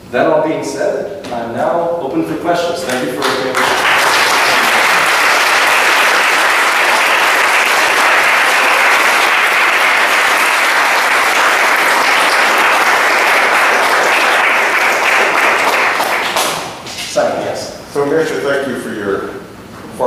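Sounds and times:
audience applauding: 2.8s - 16.8s.

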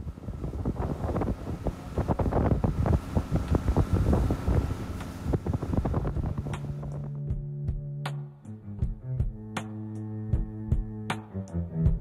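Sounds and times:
wind buffeting microphone: 0.0s - 7.4s
hull knocking and slapping waves: 0.0s - 7.9s
music: 5.0s - 12.0s.

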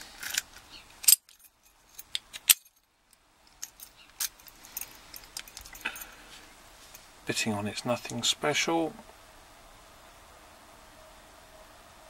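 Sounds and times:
keys jingling: 1.0s - 2.9s, 3.5s - 6.3s.

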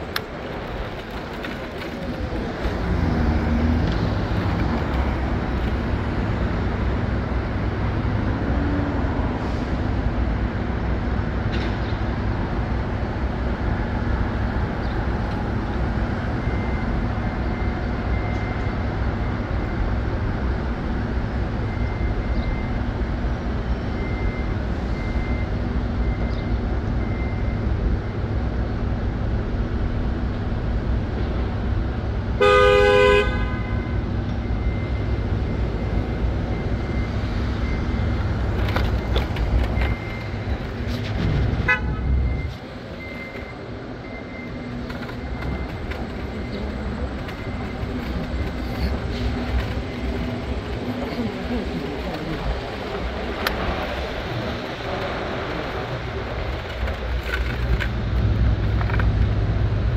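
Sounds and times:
city street traffic: 0.0s - 59.9s
faint high beeps: 42.0s - 52.7s.

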